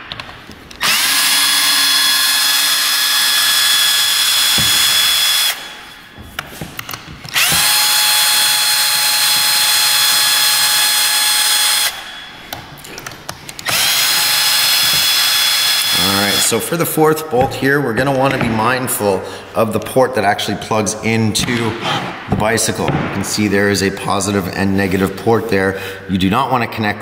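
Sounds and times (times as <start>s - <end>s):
electric screwdriver running: 0.8s - 5.8s, 7.3s - 12.1s, 13.6s - 16.6s.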